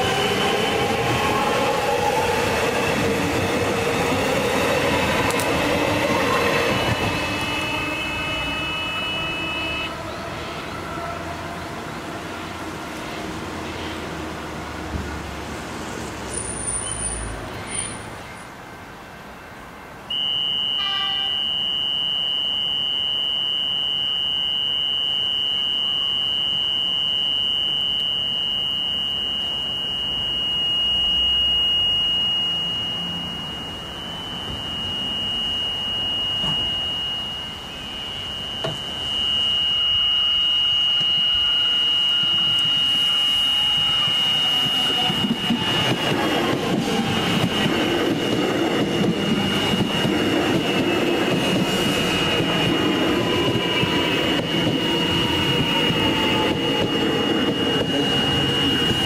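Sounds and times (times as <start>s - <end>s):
high electronic warning tone: 0.0s - 11.3s, 20.1s - 59.0s
electric train approaching: 0.0s - 59.0s
short chime: 27.7s - 45.5s.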